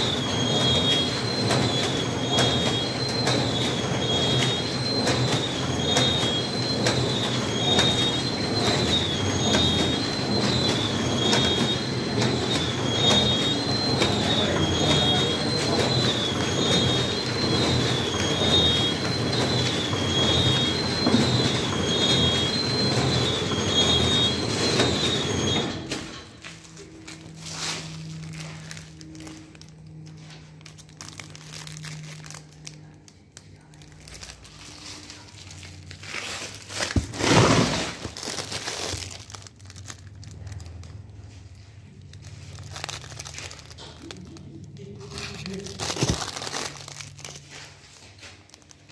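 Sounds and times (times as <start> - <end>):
packing machine running: 0.0 - 48.9
plastic film crinkling: 26.6 - 48.9.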